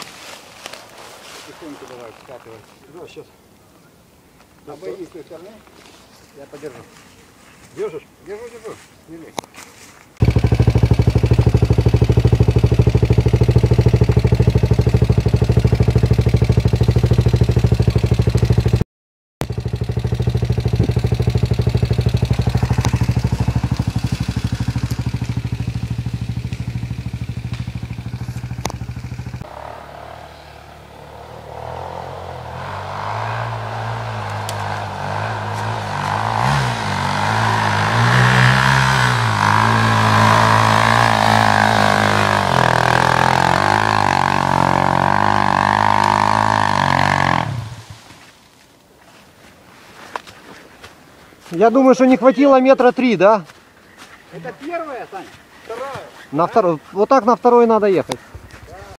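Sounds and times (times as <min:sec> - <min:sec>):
dirt bike engine running: 0:10.2 - 0:18.8, 0:19.4 - 0:48.0
dirt bike revving uphill: 0:10.2 - 0:18.8, 0:19.4 - 0:48.1.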